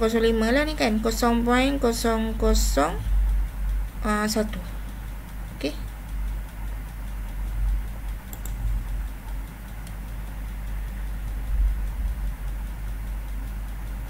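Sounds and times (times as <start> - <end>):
low background rumble: 0.0 - 14.0
mouse clicks: 8.3 - 8.8.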